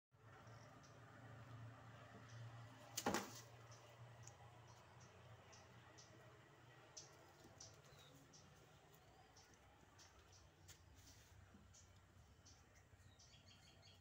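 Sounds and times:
faint clicks: 3.7s - 4.4s.

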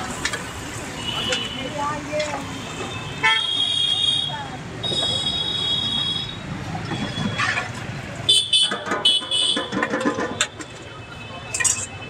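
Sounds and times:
road traffic: 0.0s - 12.0s
vehicle horns tooting: 1.0s - 1.8s, 2.8s - 7.6s, 8.3s - 12.0s.

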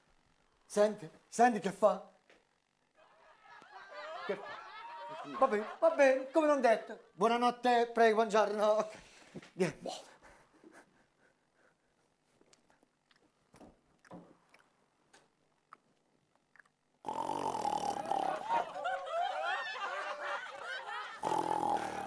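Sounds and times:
man snoring loudly: 17.0s - 18.6s, 21.2s - 22.0s.

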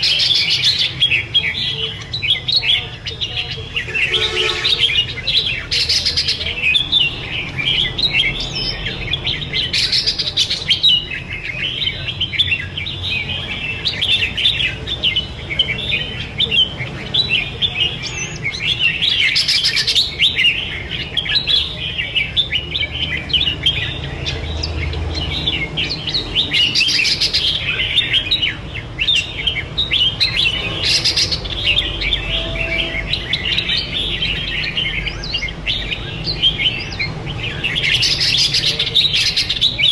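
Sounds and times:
birds singing: 0.0s - 39.9s.

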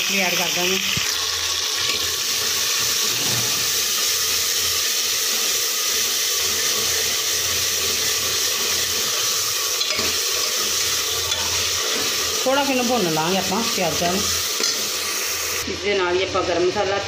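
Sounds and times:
food sizzling in hot oil: 0.0s - 17.0s.

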